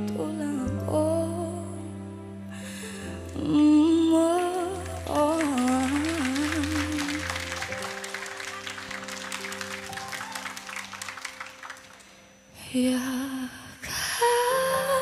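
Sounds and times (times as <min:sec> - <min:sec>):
woman singing a ballad: 0:00.0 - 0:07.5, 0:12.6 - 0:15.0
keyboard and strings chords: 0:00.0 - 0:13.6
audience applause: 0:04.6 - 0:12.3.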